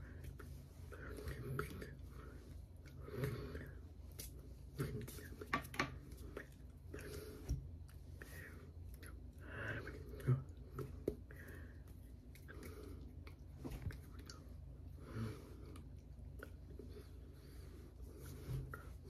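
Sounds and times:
steady low hum: 0:00.0 - 0:19.0
breaths and lip smacks: 0:02.7 - 0:17.3.

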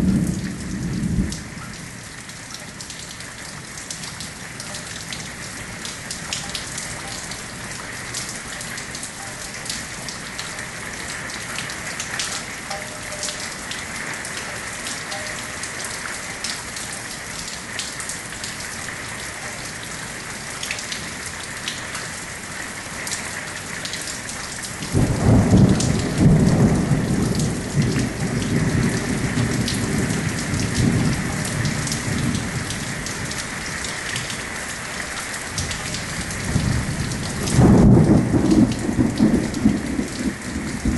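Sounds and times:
raindrops clicking close by: 0:00.0 - 0:40.9
steady rain: 0:00.0 - 0:40.9
thunder rolling: 0:24.9 - 0:32.8, 0:36.4 - 0:40.9.

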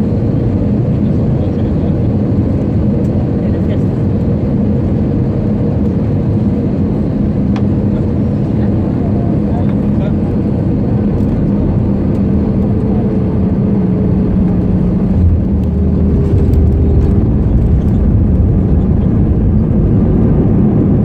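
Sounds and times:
aircraft engines and airflow rumble: 0:00.0 - 0:21.0
faint cabin hum: 0:07.4 - 0:21.0.

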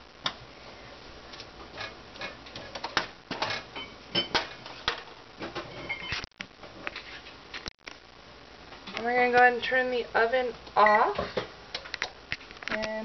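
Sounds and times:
spoon scraping foil and pan: 0:01.3 - 0:05.0, 0:06.9 - 0:07.6.

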